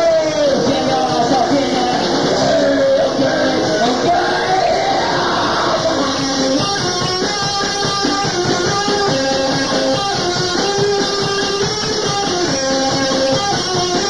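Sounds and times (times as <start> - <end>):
person singing: 0.0 - 6.5
rock band playing: 0.0 - 14.0.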